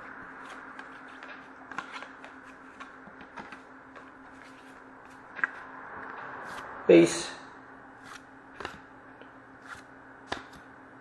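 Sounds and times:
steady low hum: 0:00.0 - 0:11.0
trading cards rustling: 0:00.2 - 0:05.7, 0:08.0 - 0:08.8.

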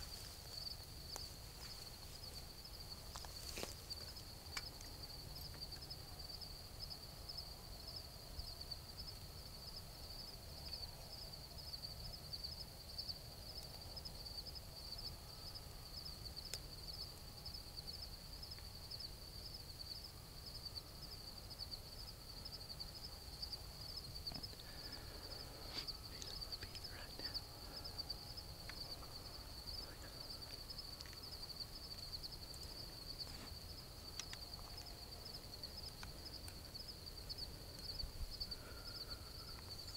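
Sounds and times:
faint rustles: 0:00.0 - 0:05.0, 0:24.0 - 0:35.2
insects trilling: 0:00.0 - 0:39.9.

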